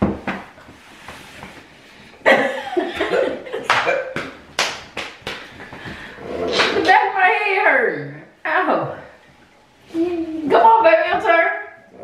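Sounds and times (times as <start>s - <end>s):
hand slaps: 3.7s - 5.7s.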